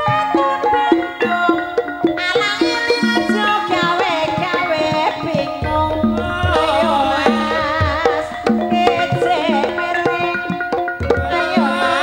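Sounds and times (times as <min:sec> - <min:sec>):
gamelan pitched percussion: 0:00.0 - 0:12.0
hand drums: 0:00.0 - 0:12.0
person singing ornamented vocal: 0:02.5 - 0:12.0.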